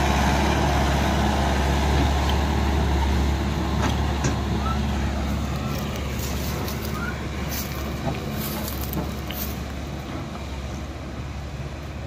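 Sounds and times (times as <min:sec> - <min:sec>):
tractor diesel engine running: 0:00.0 - 0:12.0
trailers rumbling over dirt road: 0:00.0 - 0:12.0.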